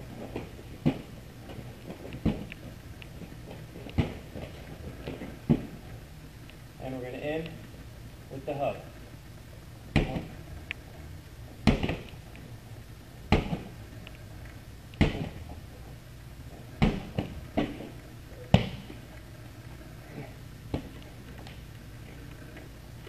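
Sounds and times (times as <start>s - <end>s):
medicine ball thudding: 0.0s - 1.2s, 2.0s - 2.5s, 3.9s - 5.8s, 9.9s - 10.3s, 11.6s - 12.1s, 13.3s - 13.8s, 15.0s - 15.5s, 16.7s - 19.0s, 20.7s - 21.0s.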